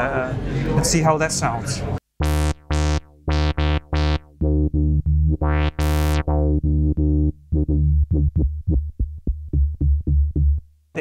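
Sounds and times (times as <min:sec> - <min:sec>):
staccato synthesizer bass line: 0:02.2 - 0:10.7.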